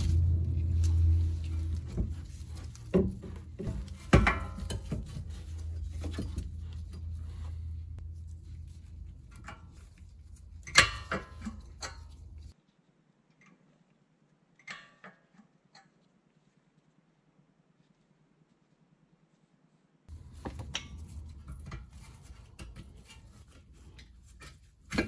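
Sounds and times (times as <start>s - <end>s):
steady low hum: 0.0s - 12.6s.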